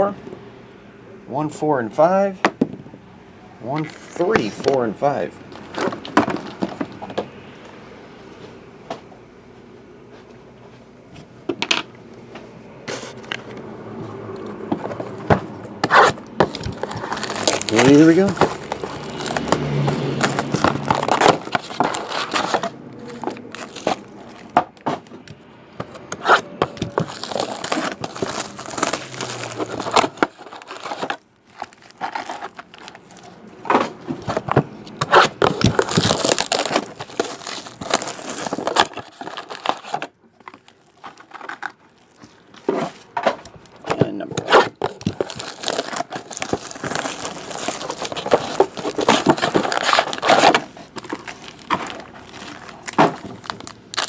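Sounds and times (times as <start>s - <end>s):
plastic wrap tearing and crinkling: 15.8s - 25.0s, 26.2s - 33.4s, 34.2s - 43.0s, 43.6s - 54.0s
foil packs handled: 15.9s - 25.2s, 26.2s - 54.0s.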